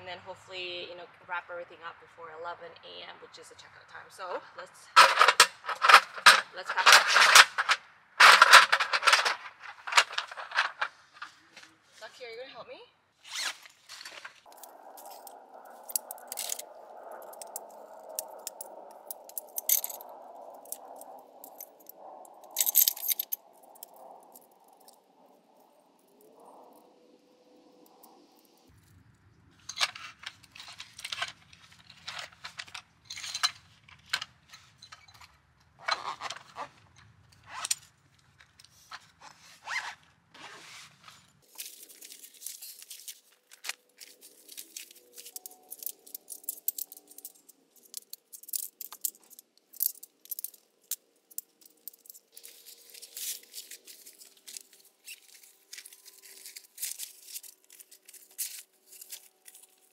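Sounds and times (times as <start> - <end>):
rustling and crinkling of gear: 4.9 - 12.2, 13.2 - 26.9, 29.6 - 59.9
sharp crackles and clicks: 14.0 - 26.9, 41.4 - 59.9.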